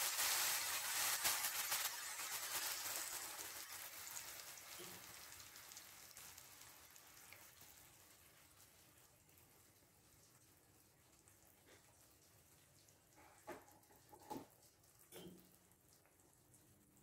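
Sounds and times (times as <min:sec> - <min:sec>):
cream being poured: 0:00.0 - 0:12.0
mushrooms sizzling in a frying pan: 0:00.0 - 0:12.8.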